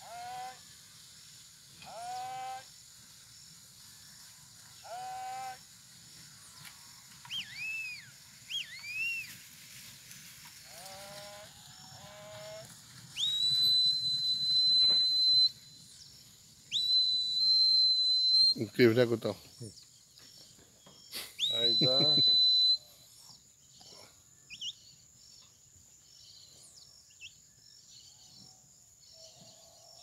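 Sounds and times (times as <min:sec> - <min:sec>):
person whistling calls: 0:07.3 - 0:09.3, 0:13.2 - 0:15.6, 0:16.7 - 0:18.8, 0:21.4 - 0:22.9.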